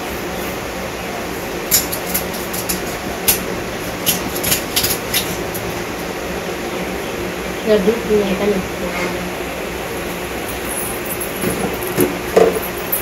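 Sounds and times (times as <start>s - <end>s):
knife crunching through fish bone: 1.7s - 5.7s.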